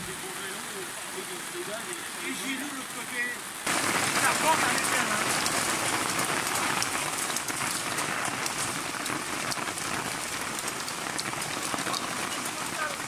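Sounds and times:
hail hitting: 0.0s - 13.0s
heavy rain: 0.0s - 13.0s.

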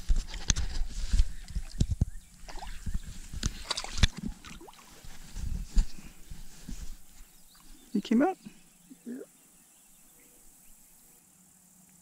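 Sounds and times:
knocks and rubbing on camera microphone: 0.0s - 7.9s.

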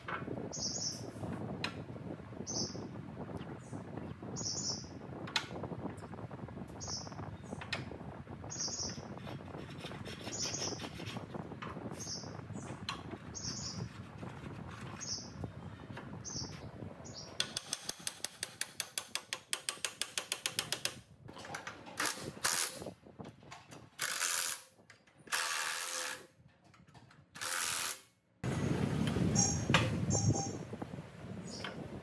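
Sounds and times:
mechanical ratchet clicks: 24.0s - 24.7s, 25.3s - 26.3s, 27.4s - 28.1s.

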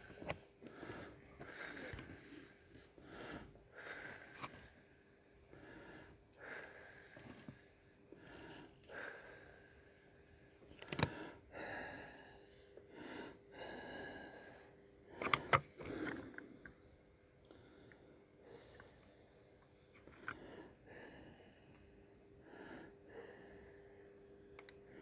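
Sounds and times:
person breathing and sniffing: 17.8s - 25.0s.

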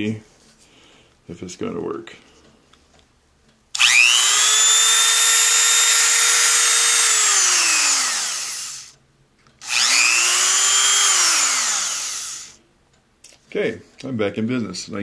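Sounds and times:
rotary tool whining: 3.8s - 9.0s, 9.6s - 12.6s.

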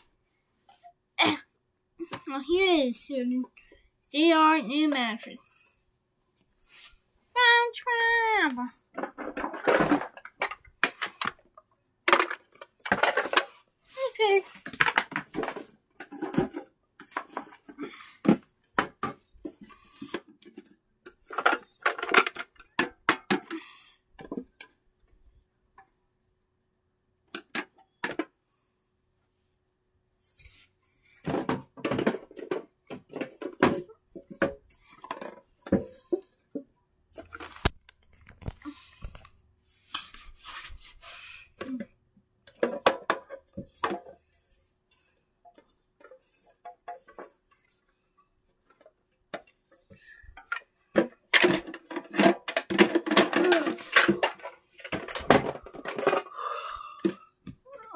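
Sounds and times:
plush toys knocking on metal tins: 50.9s - 56.3s.

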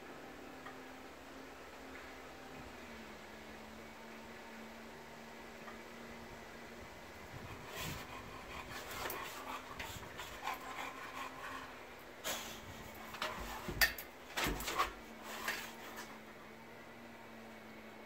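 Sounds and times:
rubbing sounds: 7.4s - 11.8s.

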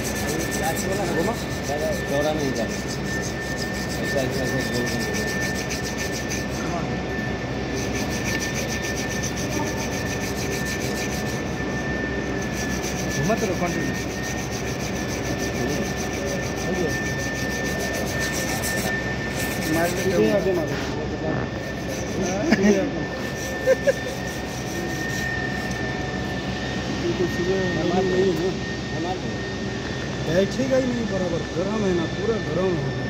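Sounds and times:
block rubbing on steel pipe: 0.0s - 6.8s, 7.7s - 20.9s, 21.6s - 25.8s
high-pitched machine whine: 0.0s - 33.0s
workshop machine noise: 0.0s - 33.0s.

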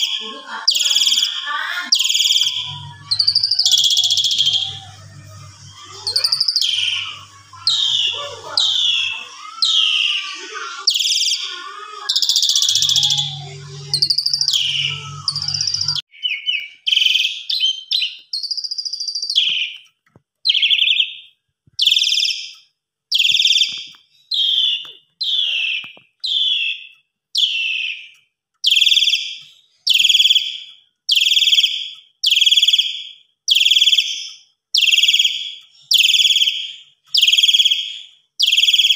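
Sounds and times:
shrill descending bird calls: 0.0s - 19.8s, 20.5s - 38.9s
starling singing: 0.0s - 19.8s, 23.2s - 28.1s.

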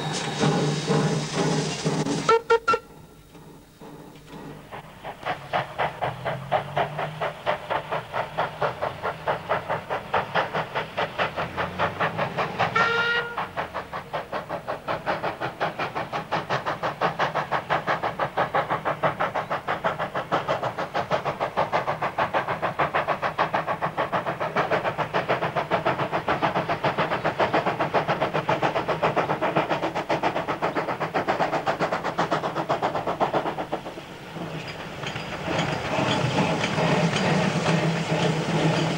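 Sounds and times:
steam locomotive exhaust beating: 0.0s - 38.9s
steam whistle toot: 2.2s - 3.2s, 12.7s - 13.5s.

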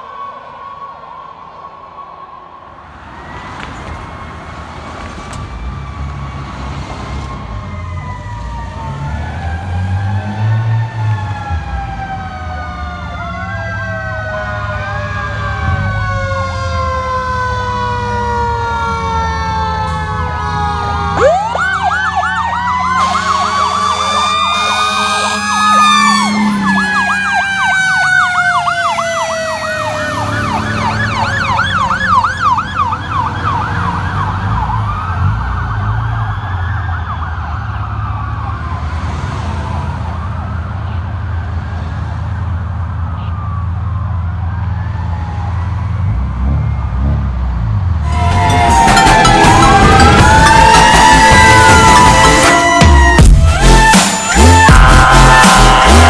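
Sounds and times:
mechanical siren winding down: 7.1s - 38.8s, 44.6s - 56.0s
electronic siren wailing and yelping: 7.4s - 37.6s, 48.1s - 56.0s.

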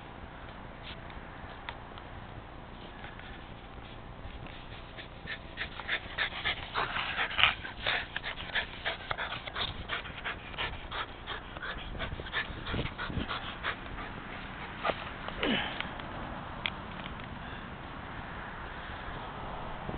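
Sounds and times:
dog panting: 4.5s - 15.4s.

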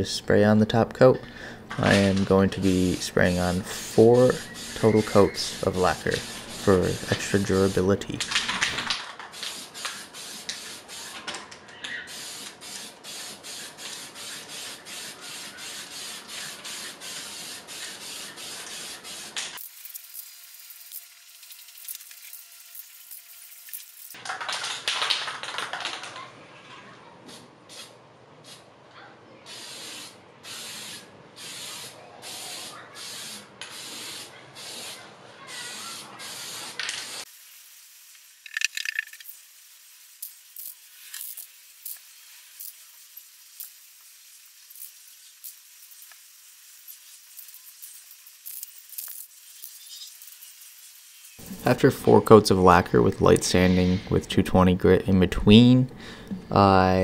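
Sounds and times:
aerosol can spraying: 1.9s - 8.0s, 8.8s - 11.3s, 12.1s - 24.2s, 27.3s - 28.6s, 29.5s - 52.3s.

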